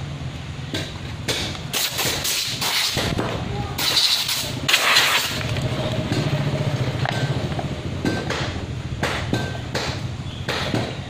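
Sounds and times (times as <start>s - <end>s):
sharp knocks: 7.0s - 11.0s.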